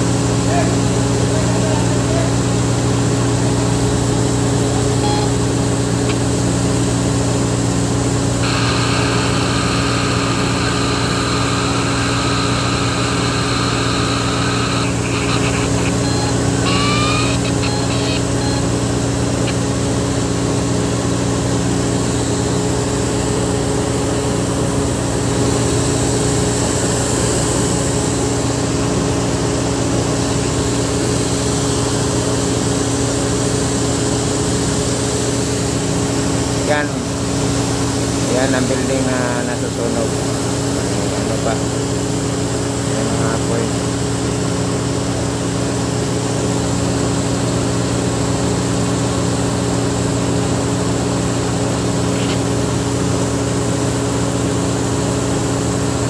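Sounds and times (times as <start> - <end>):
diesel engine humming: 0.0 - 33.7
siren tone with rising chirps: 8.1 - 19.6.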